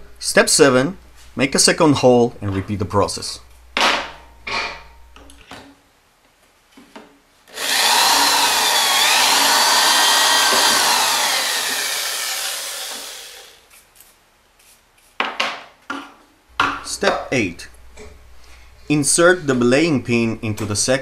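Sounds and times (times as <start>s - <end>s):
electric drill whining: 7.5s - 13.6s.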